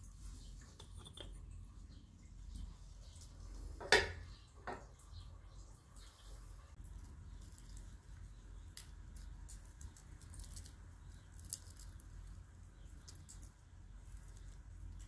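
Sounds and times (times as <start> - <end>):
roasted skin crackling and squishing: 6.0 - 15.0.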